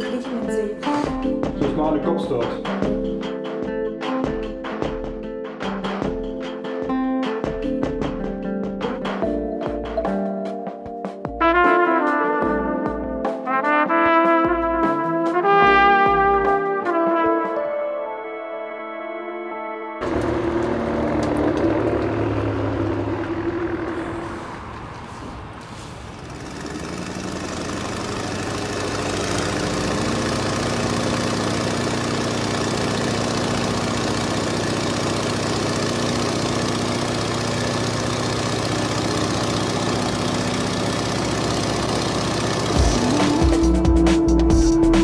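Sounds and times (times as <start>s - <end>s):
biplane engine and propeller: 20.0s - 43.8s.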